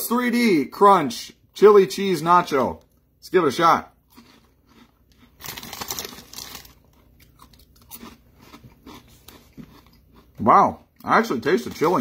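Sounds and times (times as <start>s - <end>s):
crunching chips: 4.0s - 10.4s, 11.2s - 12.0s
chewing crackles: 4.0s - 11.1s.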